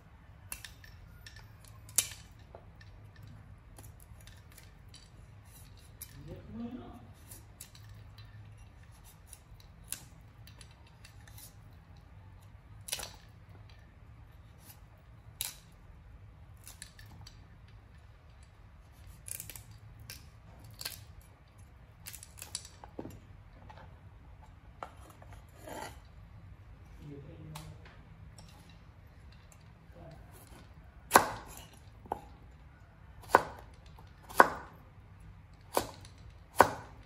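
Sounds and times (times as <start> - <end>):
cleaver chopping on wooden board: 35.7 - 37.0.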